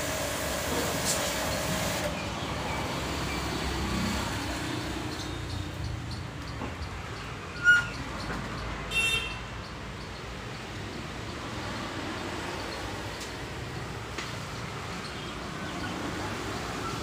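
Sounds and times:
pressure washer spray hissing: 0:00.0 - 0:02.1
passing road traffic hum: 0:00.0 - 0:17.0.

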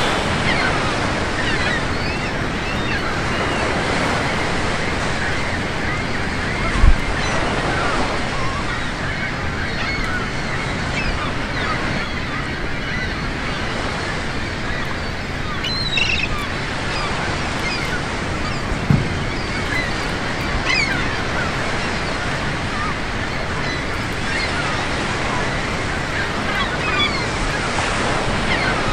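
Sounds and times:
ocean surf: 0:00.0 - 0:28.9
soft thump: 0:18.9 - 0:19.3.

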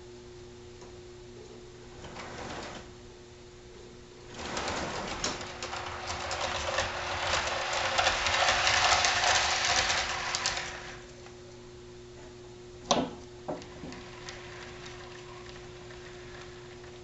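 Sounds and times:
model train wheels clattering: 0:04.3 - 0:11.1, 0:13.5 - 0:17.0.

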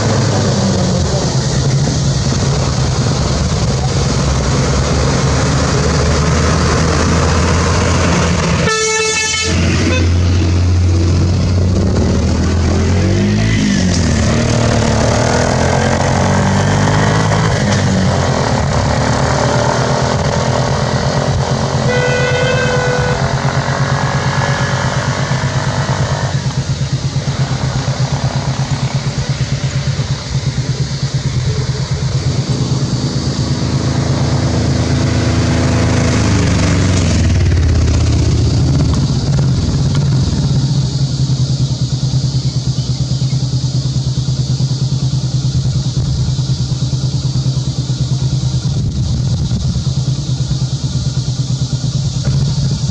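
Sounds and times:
bus diesel engine idling: 0:00.0 - 0:12.7, 0:26.3 - 0:35.1, 0:36.2 - 0:52.9
higher vehicle horn: 0:08.5 - 0:10.4, 0:21.7 - 0:24.4
vehicle horn tooting: 0:08.6 - 0:10.2, 0:21.8 - 0:23.8.

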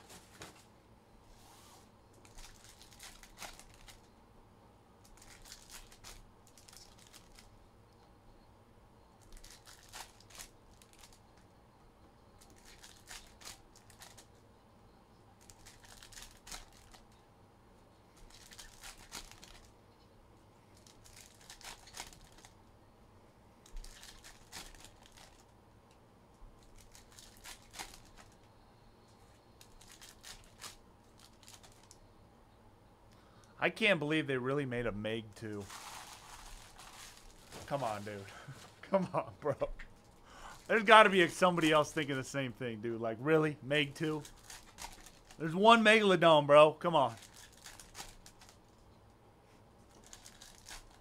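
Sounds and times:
card pack wrappers tearing: 0:02.2 - 0:04.0, 0:05.1 - 0:07.5, 0:09.2 - 0:11.2, 0:12.4 - 0:14.3, 0:15.4 - 0:17.1, 0:18.2 - 0:19.7, 0:20.8 - 0:22.5, 0:23.7 - 0:25.4, 0:26.6 - 0:28.4, 0:29.6 - 0:32.0, 0:35.5 - 0:38.8, 0:44.0 - 0:45.5, 0:47.0 - 0:48.6, 0:49.9 - 0:51.0.

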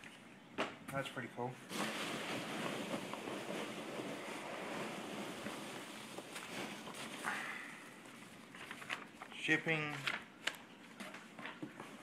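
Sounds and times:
packing peanuts rustling: 0:01.7 - 0:10.2.

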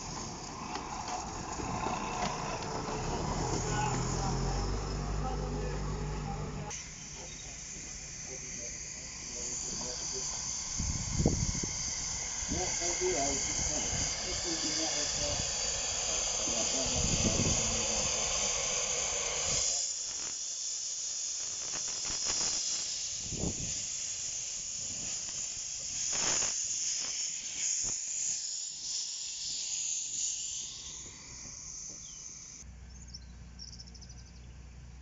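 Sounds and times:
steam locomotive puffing: 0:00.0 - 0:19.8
steam hissing: 0:00.0 - 0:32.6.

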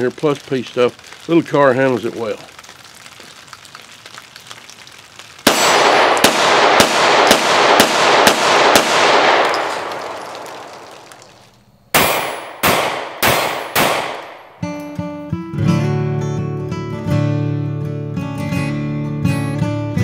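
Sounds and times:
pistol shots: 0:05.4 - 0:14.8.

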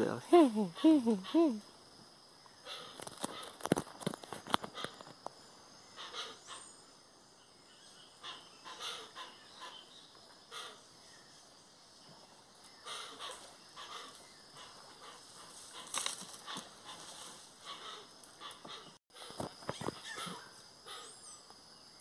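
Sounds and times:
birds giving hoarse raspy calls: 0:02.6 - 0:03.8, 0:04.4 - 0:05.2, 0:05.8 - 0:06.8, 0:08.1 - 0:10.9, 0:12.8 - 0:21.4.

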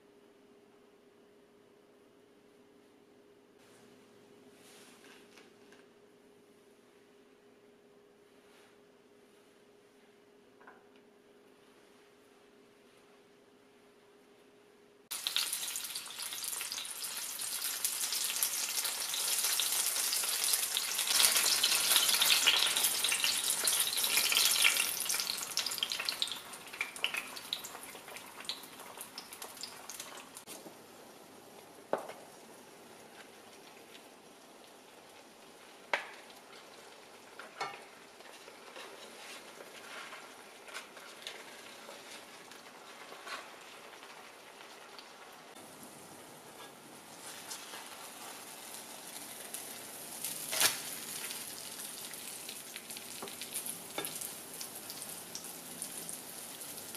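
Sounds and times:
food sizzling in hot oil: 0:15.1 - 0:30.6, 0:31.9 - 0:56.9.

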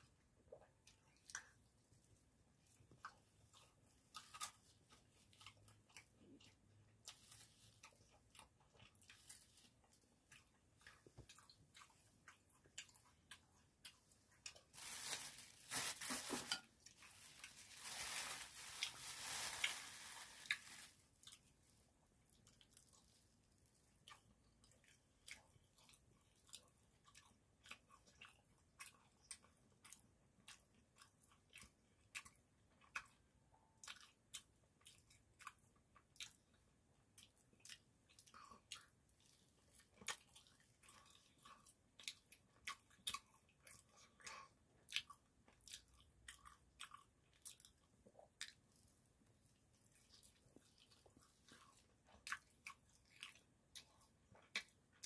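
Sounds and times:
soft chewing: 0:00.0 - 0:55.0
plastic rustling: 0:14.7 - 0:21.1.

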